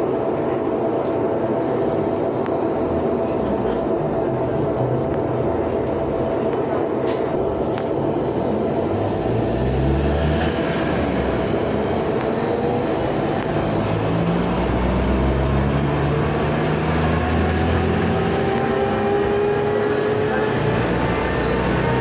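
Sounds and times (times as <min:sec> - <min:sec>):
trolleybus running and road noise: 0:00.0 - 0:22.0
rising motor whine: 0:07.4 - 0:22.0.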